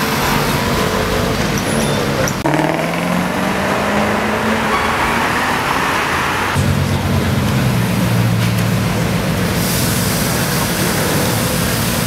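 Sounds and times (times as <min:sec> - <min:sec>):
engine drone: 0:00.0 - 0:12.0
street traffic noise: 0:00.0 - 0:12.0.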